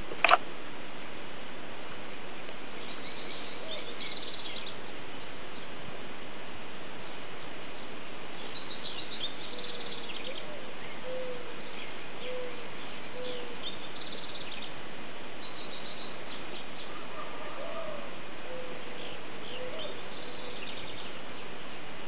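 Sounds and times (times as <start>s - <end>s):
background hiss: 0.0s - 22.0s
birds chirping and trilling: 2.7s - 5.8s, 7.0s - 14.8s, 15.4s - 21.8s
low bird calls: 2.8s - 5.8s, 7.0s - 14.8s, 15.4s - 21.6s.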